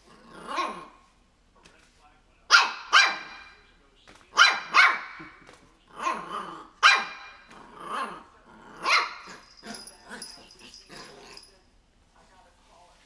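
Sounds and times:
puppy barking in high yaps: 2.5 - 3.5, 4.4 - 5.2, 6.8 - 7.3.

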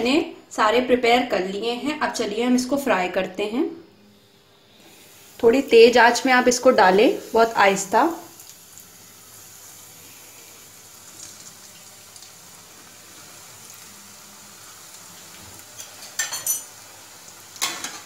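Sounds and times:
deep-frying sizzle in oil: 4.2 - 18.0.

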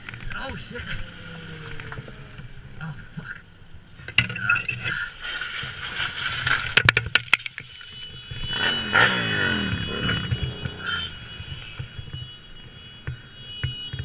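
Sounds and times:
motorcycle passing: 0.0 - 4.1, 7.5 - 14.0
dry leaves crunching: 0.4 - 2.7, 4.9 - 8.0.

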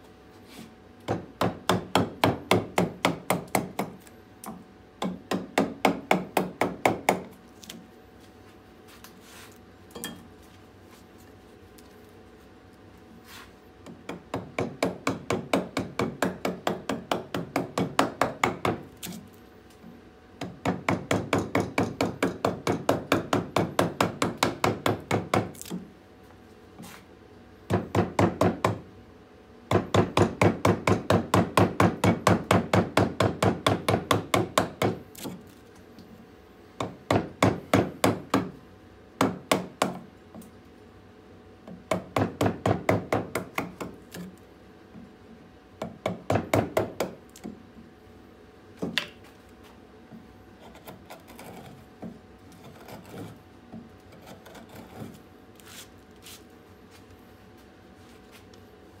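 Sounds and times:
mallet striking gouge into wood: 1.1 - 7.3, 13.9 - 18.9, 20.4 - 25.9, 27.7 - 28.8, 29.7 - 35.4, 39.2 - 40.1, 41.7 - 44.3, 45.8 - 47.6.

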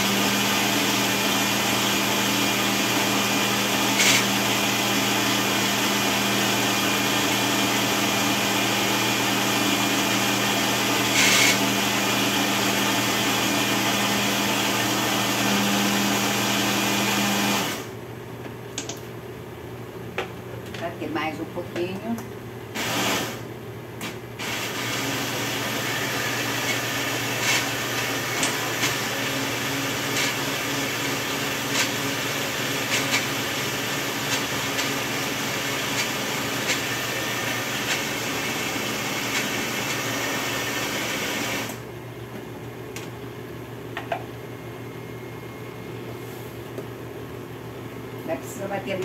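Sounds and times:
blender grinding grain: 0.0 - 18.0, 22.8 - 41.8.

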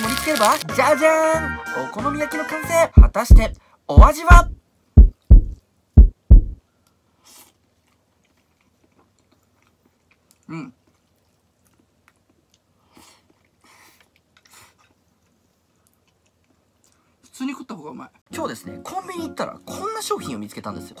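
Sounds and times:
person chewing quietly: 6.7 - 17.4.

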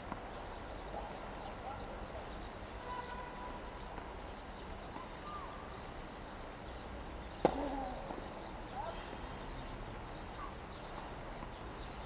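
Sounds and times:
low outdoor background hum: 0.0 - 12.0
faint bird chirps and whistles: 4.6 - 12.0.

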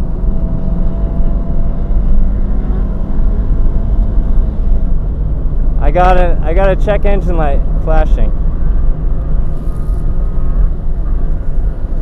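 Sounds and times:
car engine running hard: 0.0 - 12.0
wind and road noise: 0.0 - 12.0.

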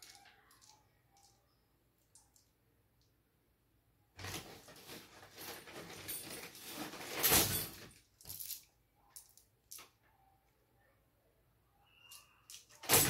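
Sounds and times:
rustling and scraping: 4.2 - 8.6.

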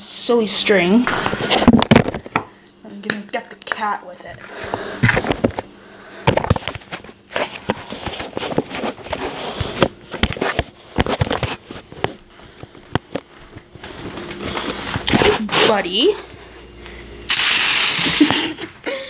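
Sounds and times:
footsteps on wooden floor: 4.3 - 5.6.

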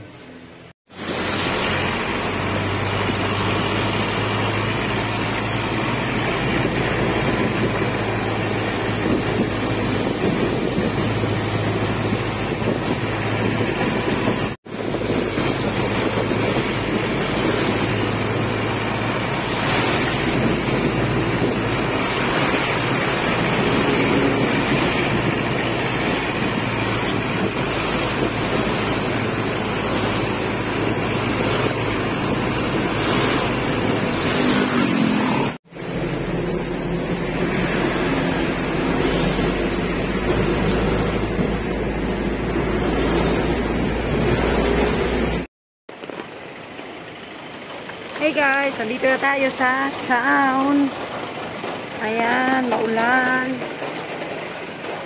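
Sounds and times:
engine droning: 0.0 - 55.0
tyres hissing on wet road: 0.0 - 55.0
wind buffeting microphone: 2.0 - 45.5.

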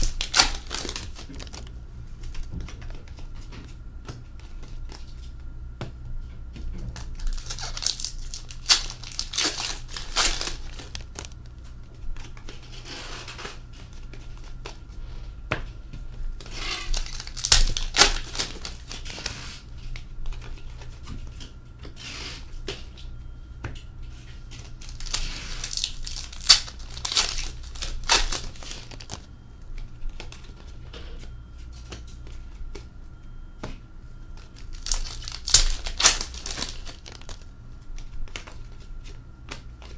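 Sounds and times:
card pack wrappers tearing: 0.0 - 1.8, 7.0 - 11.5, 16.5 - 19.6, 24.6 - 29.3, 34.5 - 37.4.

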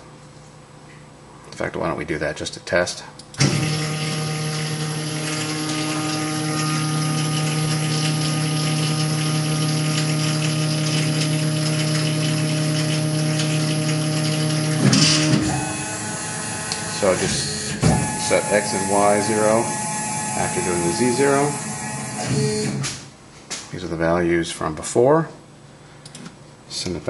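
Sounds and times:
stepper motor whine: 3.4 - 22.8.

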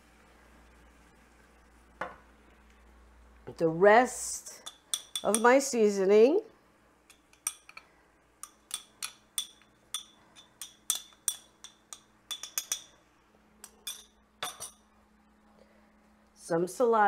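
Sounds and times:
glass bowl clinking: 4.6 - 5.6, 7.1 - 13.0, 13.6 - 14.9.

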